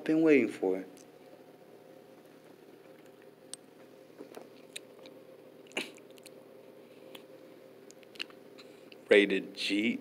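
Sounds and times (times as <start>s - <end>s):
faint steady hum: 0.0s - 10.0s
mouth smack: 5.7s - 6.4s.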